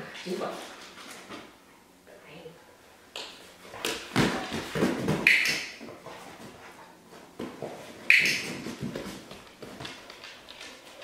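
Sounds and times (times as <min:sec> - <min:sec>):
dog paws on wooden floor: 0:03.6 - 0:11.0.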